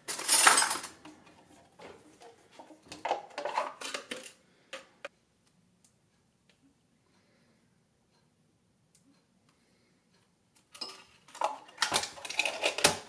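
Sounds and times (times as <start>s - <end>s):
cutlery rattling in drawer: 0.0s - 1.0s, 10.8s - 13.0s.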